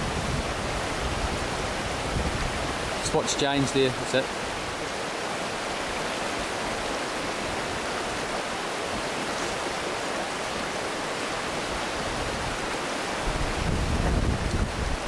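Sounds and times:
wind buffeting microphone: 0.0 - 5.0, 11.5 - 15.0
river rushing over stones: 0.0 - 15.0.

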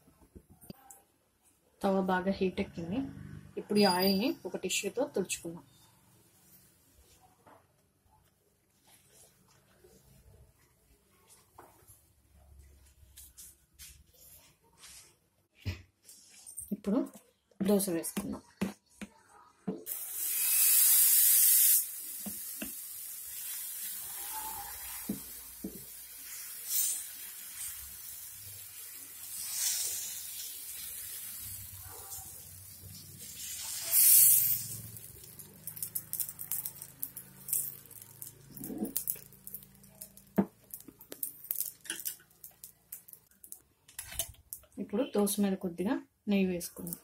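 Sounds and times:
batter sizzling on a hot griddle: 19.9 - 43.3.

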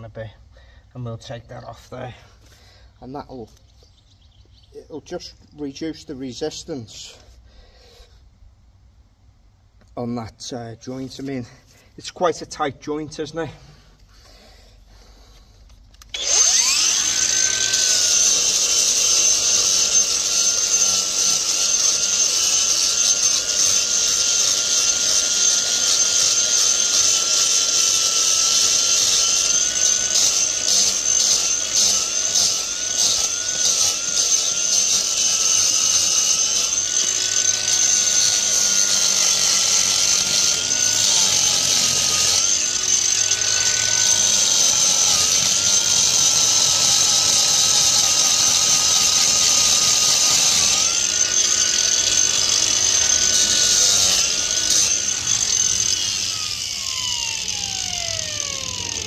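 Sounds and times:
angle grinder grinding concrete: 16.1 - 59.0.

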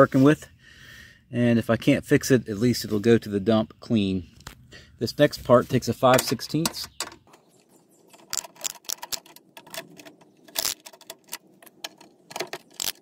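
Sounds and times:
ratchet wrench clicking: 10.5 - 13.0.

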